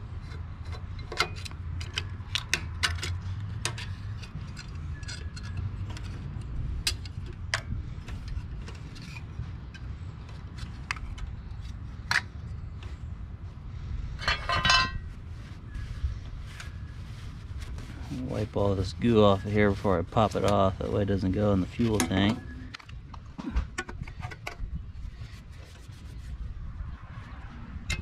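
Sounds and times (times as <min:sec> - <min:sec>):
hand tools clinking on metal parts: 0:14.2 - 0:15.0.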